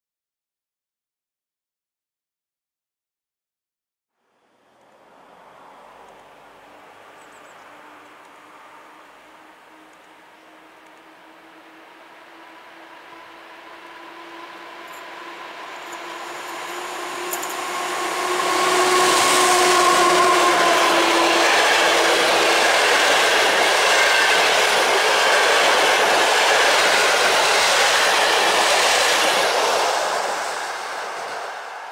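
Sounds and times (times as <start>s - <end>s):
electric locomotive whine: 4.4s - 31.9s
train wheels clickety-clack: 13.8s - 31.9s.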